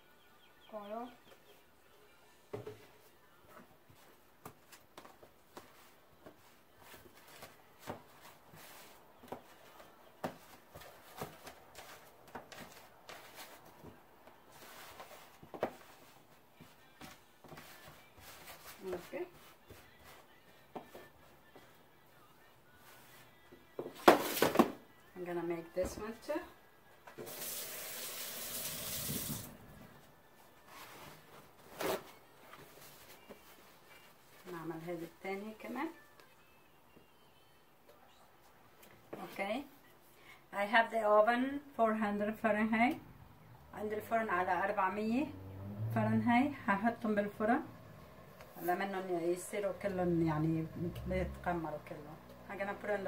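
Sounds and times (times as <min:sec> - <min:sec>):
kitchen faucet running: 0:27.2 - 0:29.7.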